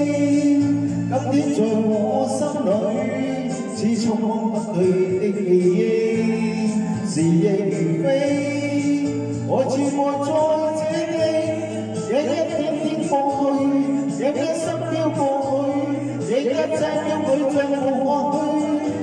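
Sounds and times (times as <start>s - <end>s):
man singing a slow song: 0.0s - 19.0s
musical accompaniment: 0.0s - 19.0s.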